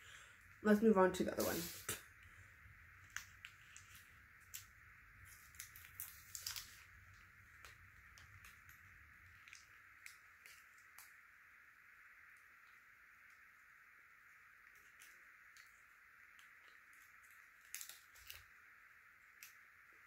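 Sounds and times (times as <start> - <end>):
faint hiss: 0.0 - 20.0
food wrapper crinkling: 3.0 - 11.2, 14.6 - 18.7.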